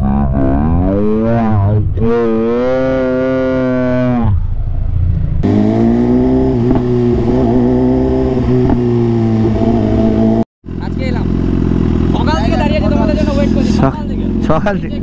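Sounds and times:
motorcycle engine running: 0:04.4 - 0:15.0.

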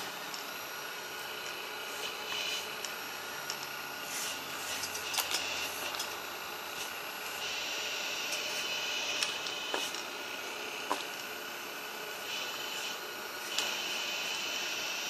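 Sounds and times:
electric pump whining: 0:00.0 - 0:15.0.

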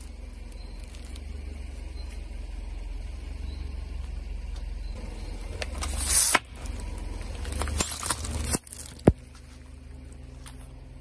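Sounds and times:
tyre crushing brittle objects: 0:00.0 - 0:01.7, 0:05.6 - 0:10.8
car low rumble: 0:00.0 - 0:11.0.

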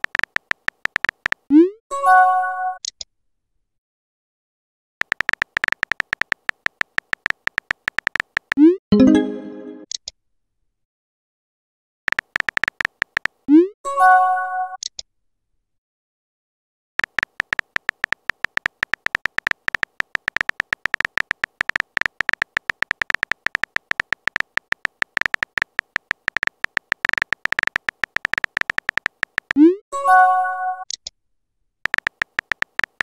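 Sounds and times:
phone keyboard tap clicks: 0:05.0 - 0:08.6, 0:12.1 - 0:13.4, 0:17.0 - 0:29.6, 0:31.9 - 0:33.0.

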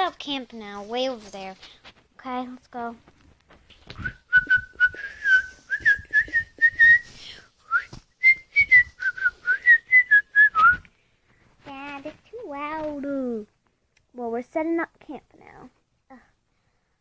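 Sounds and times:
person whistling a tune: 0:04.0 - 0:10.9.

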